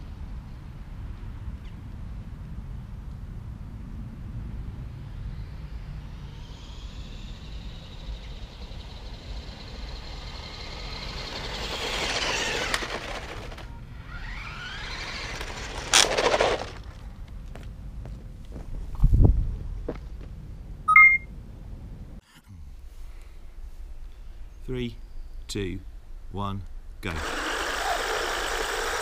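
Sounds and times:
rc truck motor whine: 5.2 - 17.0, 27.1 - 29.0.

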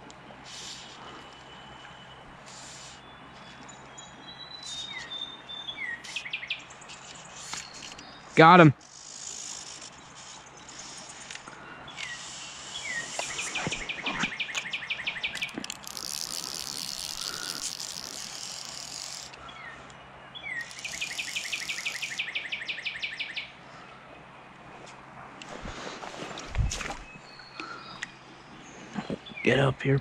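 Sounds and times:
bird song with trill: 1.2 - 8.4, 9.9 - 24.5, 26.8 - 30.0.

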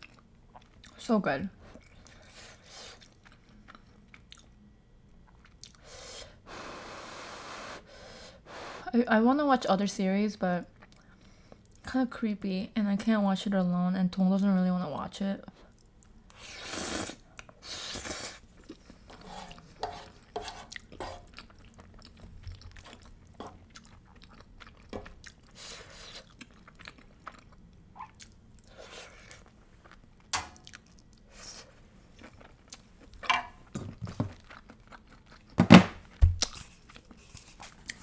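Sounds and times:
person chewing pasta: 0.0 - 1.0, 1.7 - 4.6, 5.2 - 5.9, 15.7 - 33.2, 34.0 - 38.0.

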